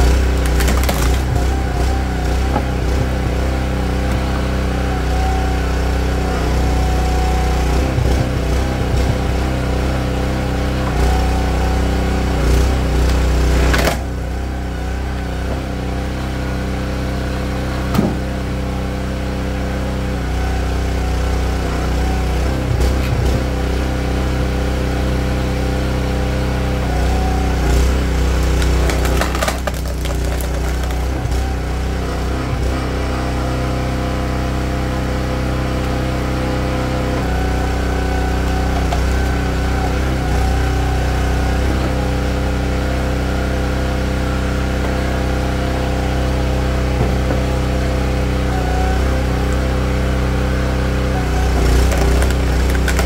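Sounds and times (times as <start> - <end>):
wood cracking: 0.0 - 1.6, 28.3 - 31.4, 51.4 - 53.0
small gasoline engine running: 0.0 - 53.0.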